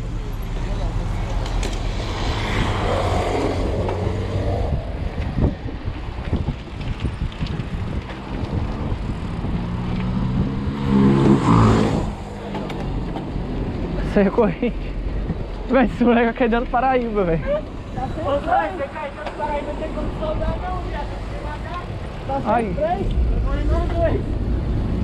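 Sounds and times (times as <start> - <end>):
vehicle engine drone passing close: 0.0 - 5.7, 8.2 - 14.0
passing car traffic: 0.0 - 25.0
road rumble: 0.0 - 25.0
wind on microphone: 1.8 - 14.0.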